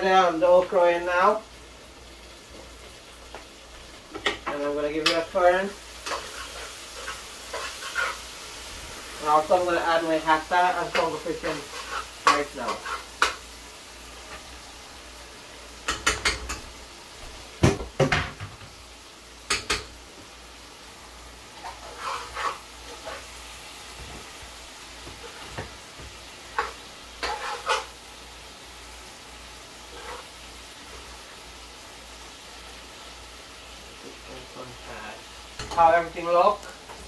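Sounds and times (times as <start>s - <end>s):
spoon scraping metal pot: 21.6s - 23.3s, 26.6s - 27.9s, 29.9s - 30.3s.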